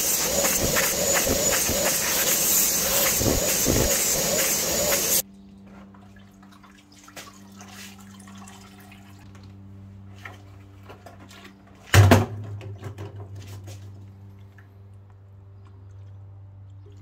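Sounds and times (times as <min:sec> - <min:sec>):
steady low hum: 0:00.0 - 0:05.6
water sloshing and dripping in tank: 0:05.7 - 0:15.0
plastic clunk with splash: 0:11.8 - 0:13.8.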